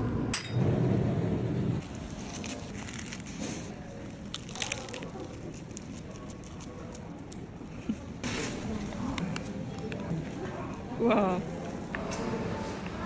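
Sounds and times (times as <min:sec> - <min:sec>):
crisp crunching bites: 0:01.9 - 0:07.4.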